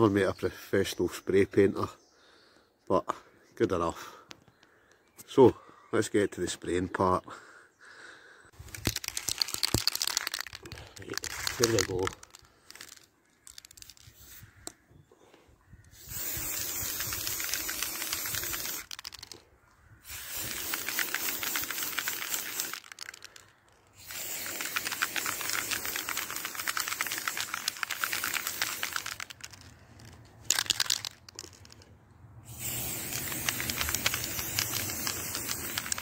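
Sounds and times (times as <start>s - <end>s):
spray paint can hissing: 8.7s - 14.4s, 15.9s - 19.4s, 20.0s - 23.4s, 24.0s - 31.8s, 32.4s - 36.0s.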